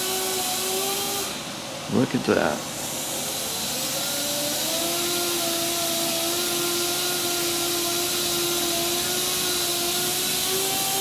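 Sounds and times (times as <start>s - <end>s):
machine motor whining: 2.9s - 11.0s.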